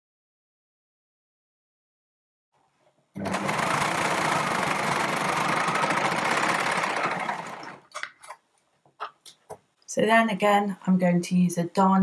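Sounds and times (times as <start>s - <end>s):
overlocker stitching: 3.2s - 8.3s.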